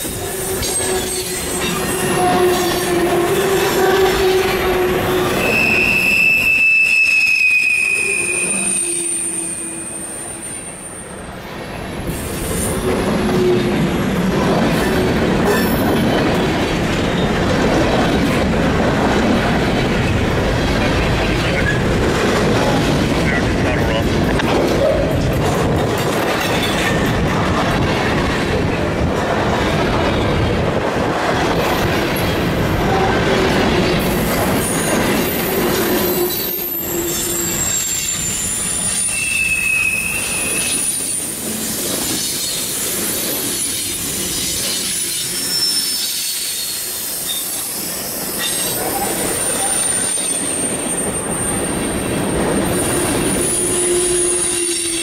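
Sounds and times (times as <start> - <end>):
train wheels rumbling and clattering: 0.0 - 7.6, 8.7 - 55.0
train wheel flanges squealing: 0.0 - 11.1, 32.9 - 55.0.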